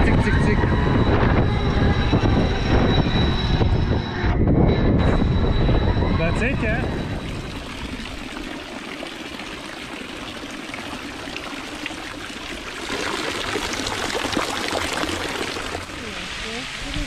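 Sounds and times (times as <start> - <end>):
running water: 6.5 - 17.0.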